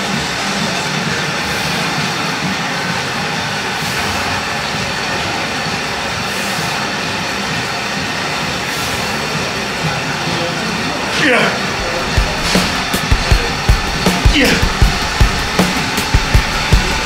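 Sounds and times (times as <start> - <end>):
loud dense background music: 0.0 - 17.0
swishing sweep: 11.7 - 17.0.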